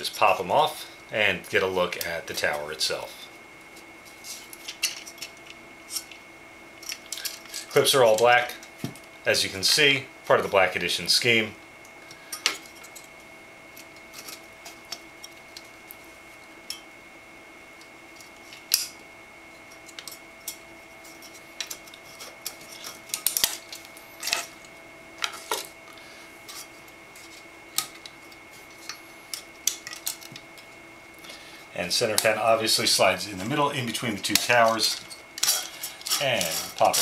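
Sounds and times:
fan clips clicking and clinking: 21.6s - 30.7s, 34.2s - 37.0s.

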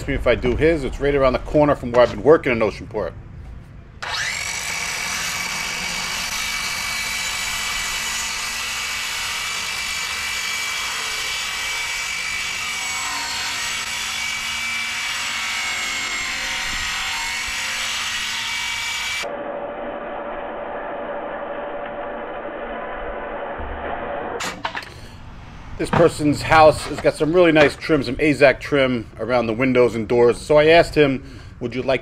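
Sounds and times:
circular saw cutting plastic: 4.0s - 24.6s.

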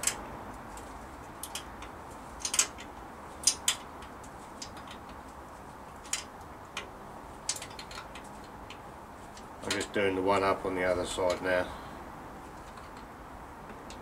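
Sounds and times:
hand tools clicking on metal: 6.1s - 10.0s.

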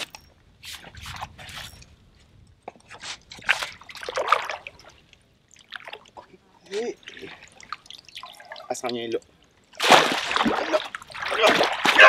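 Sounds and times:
fish splashing in water: 9.8s - 12.0s.

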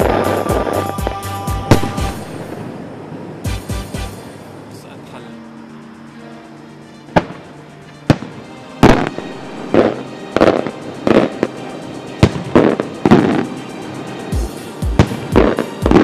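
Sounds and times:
firework shells bursting: 14.9s - 16.0s.

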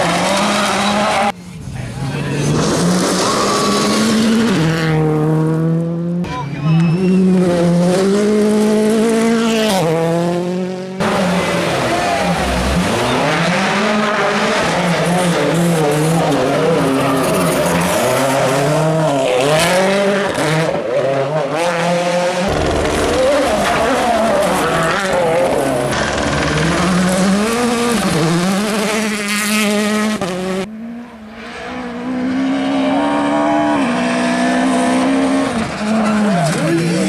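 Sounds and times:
tyres squealing and skidding: 0.0s - 1.3s, 2.2s - 4.7s, 11.6s - 19.8s
rally car engines revving: 0.0s - 37.0s.

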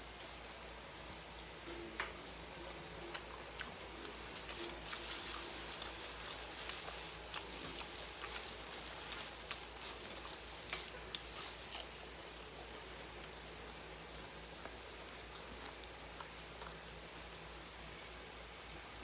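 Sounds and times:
close-up chewing: 2.6s - 17.3s
plastic glove and food crackling: 3.1s - 16.2s.

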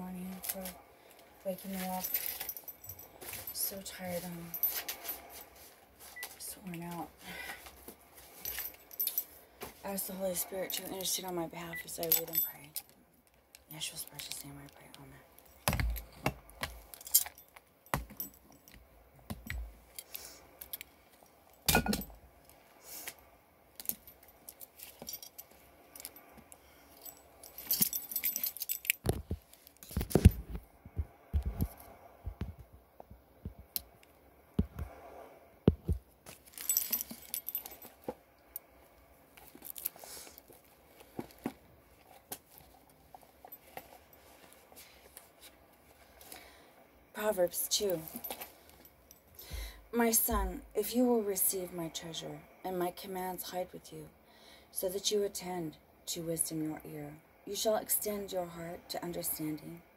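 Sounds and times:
small objects clinking: 36.3s - 38.0s.

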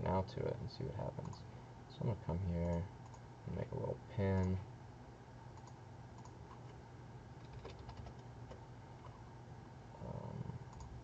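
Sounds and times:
mouse and keyboard clicks: 5.6s - 6.6s.

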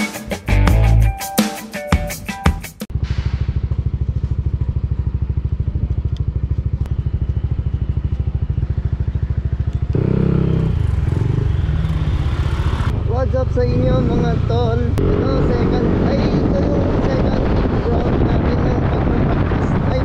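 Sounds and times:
scooter engine idling: 2.9s - 13.5s.

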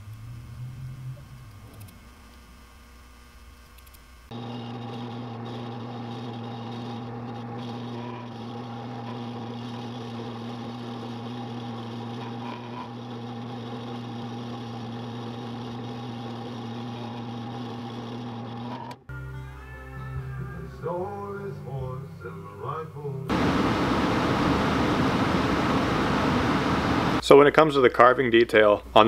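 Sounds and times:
rotary carving tool cutting wood: 4.1s - 19.0s.

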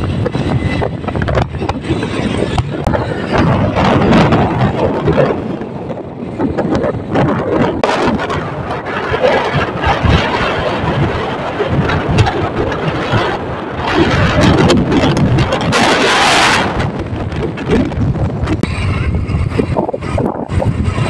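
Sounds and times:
motorcycle engine: 0.0s - 21.0s
road noise: 0.0s - 21.0s
wind buffeting microphone: 0.0s - 21.0s.

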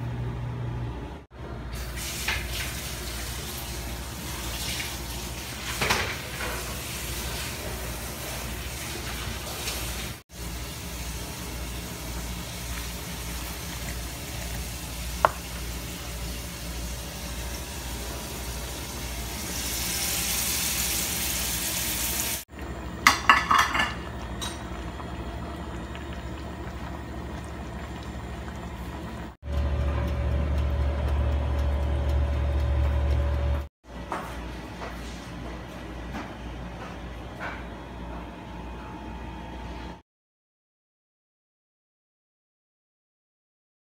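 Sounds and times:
cooking hiss: 1.8s - 22.5s
metal cookware clinking: 23.0s - 24.7s
low hum: 24.0s - 33.7s.

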